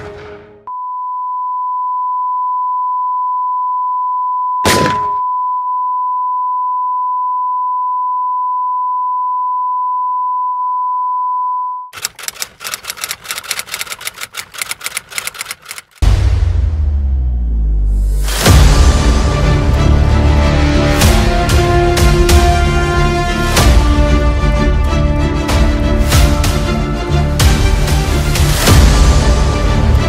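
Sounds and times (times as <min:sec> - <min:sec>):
high pure beep tone: 0:00.7 - 0:11.9
sharp gunshot: 0:04.6 - 0:05.2
typewriter clacking: 0:12.0 - 0:16.0.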